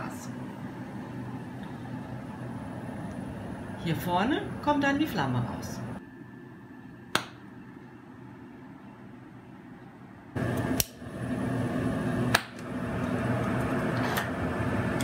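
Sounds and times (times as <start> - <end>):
gas torch flame hissing: 10.4 - 15.0
lighter clicking: 10.6 - 11.0.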